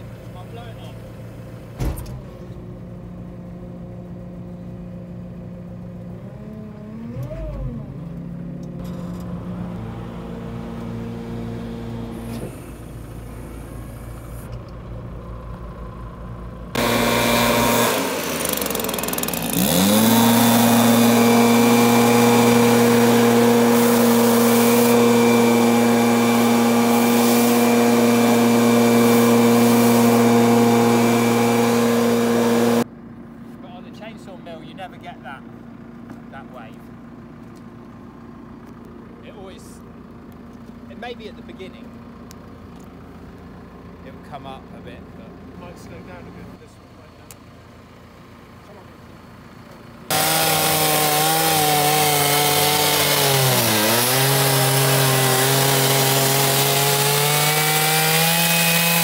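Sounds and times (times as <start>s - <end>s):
diesel engine idling: 0.0s - 1.8s, 2.4s - 17.4s, 32.8s - 50.1s
leaf blower droning: 3.6s - 14.5s, 16.7s - 34.4s, 50.0s - 59.0s.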